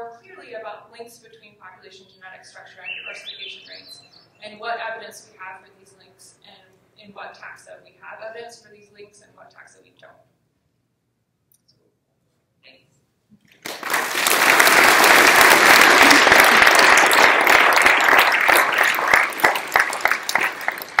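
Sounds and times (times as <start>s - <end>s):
audience applauding: 13.5s - 21.0s.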